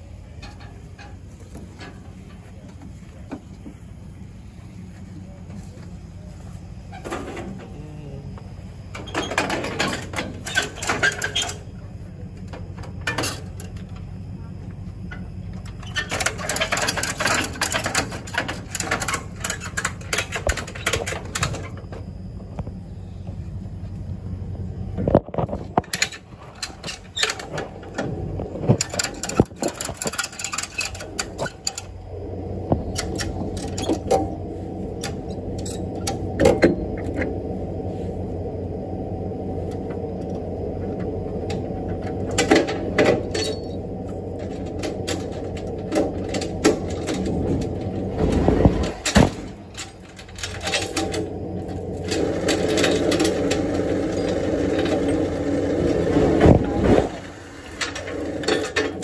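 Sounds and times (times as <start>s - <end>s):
vehicle engine idling: 0.0s - 59.0s
winch clicking and rattling: 15.1s - 21.9s, 25.4s - 32.0s, 32.9s - 37.3s, 41.0s - 59.0s.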